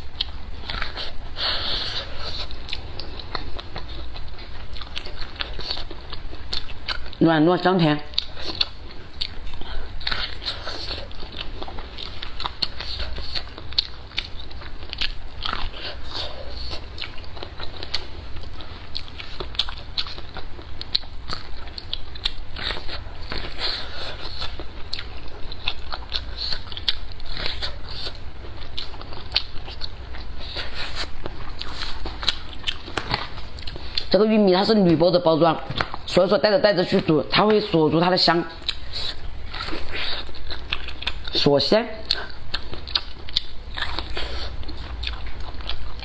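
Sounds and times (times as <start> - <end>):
wet chewing: 0.0 - 46.0.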